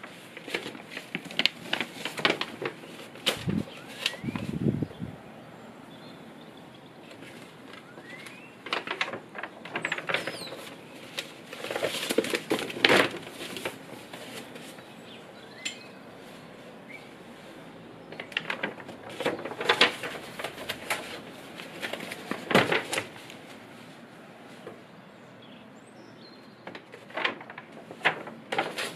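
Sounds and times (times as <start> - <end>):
paper pages rustling: 0.0 - 4.9, 7.0 - 15.1, 16.2 - 24.9, 26.6 - 28.9
faint bird chirps: 3.6 - 8.7, 14.7 - 17.2.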